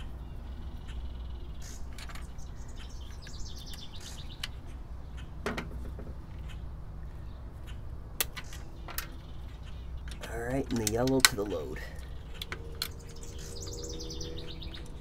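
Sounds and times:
bird chirping trill: 0.0s - 5.4s, 6.2s - 15.0s
clicks of screwdriver in metal box: 10.1s - 11.6s.

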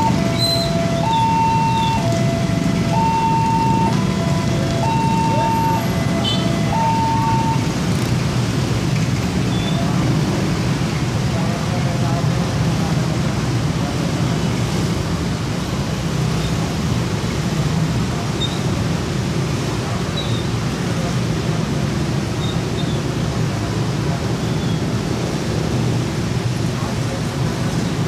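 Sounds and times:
low traffic hum: 0.0s - 28.0s
tyres on road: 0.0s - 28.0s
vehicles driving past: 0.0s - 28.0s.

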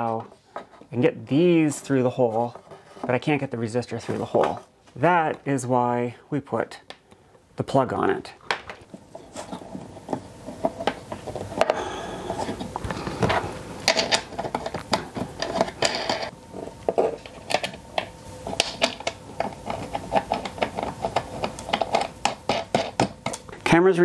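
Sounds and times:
faint steady hum: 0.0s - 24.0s
small hardware and tools rattling: 9.4s - 16.3s, 18.5s - 23.6s.

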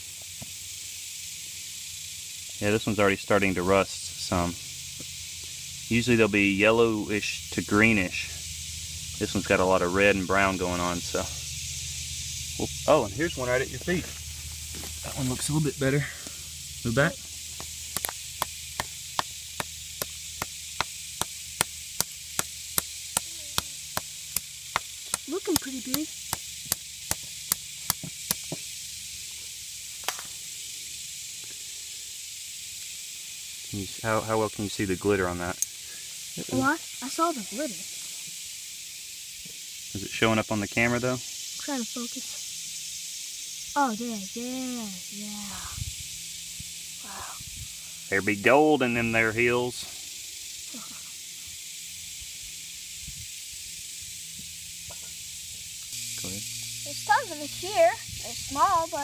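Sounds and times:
high-pitched hiss: 0.0s - 59.0s
hammer tapping on rock: 17.6s - 28.6s.

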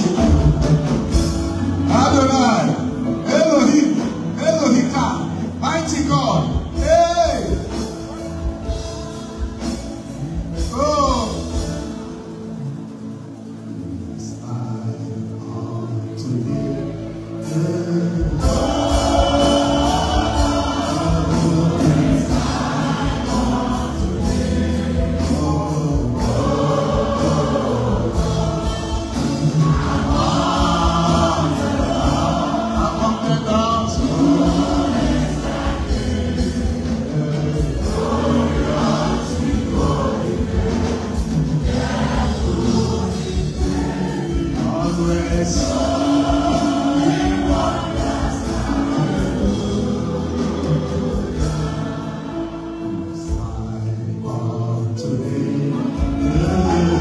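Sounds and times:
choir singing: 0.0s - 57.0s
man singing lead vocal: 14.1s - 57.0s.

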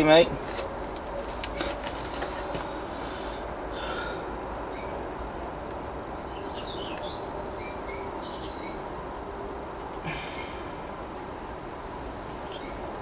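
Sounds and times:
birds chirping: 4.7s - 5.1s, 6.2s - 9.0s, 10.1s - 10.8s, 12.5s - 13.0s.

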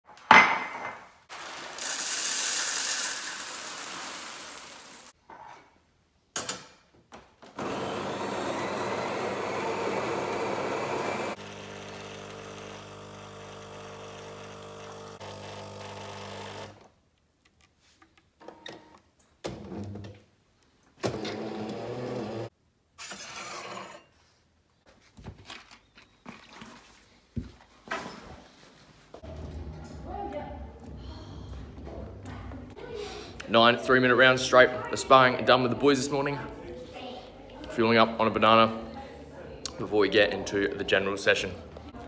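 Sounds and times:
coffee grinder whirring: 1.3s - 5.1s, 7.6s - 16.8s, 21.1s - 22.5s
pump humming: 9.2s - 16.6s.

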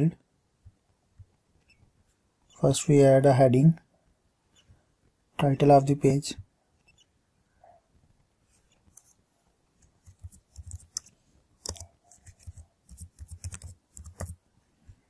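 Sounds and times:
keyboard typing: 9.8s - 14.4s.

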